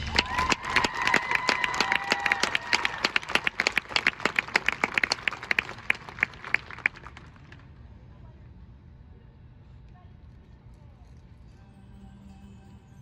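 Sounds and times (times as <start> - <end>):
crowd applause: 0.0 - 7.8.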